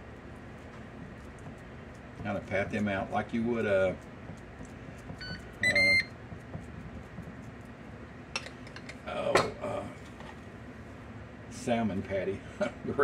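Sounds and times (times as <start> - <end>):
air fryer beeping: 5.2 - 6.2.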